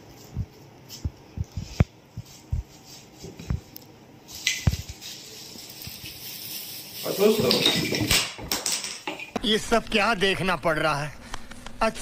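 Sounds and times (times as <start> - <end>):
plastic packaging rustling: 4.3 - 8.2.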